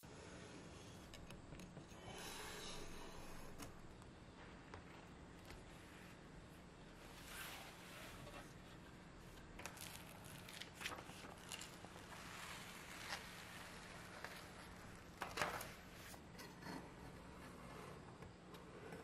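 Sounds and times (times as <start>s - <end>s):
baking paper rustling and peeling: 7.0s - 16.2s.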